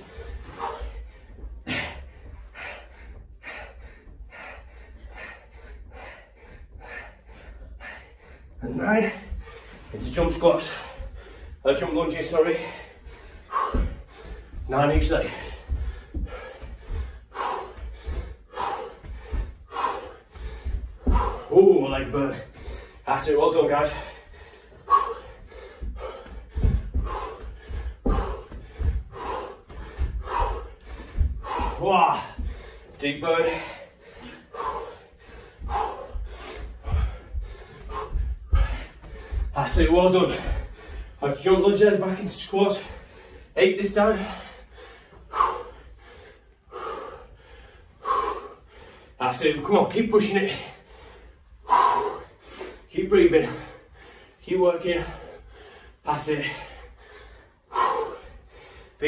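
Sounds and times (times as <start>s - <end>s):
man breathing hard: 0.0s - 59.0s
feet thudding on carpet: 13.0s - 21.5s, 25.4s - 32.8s.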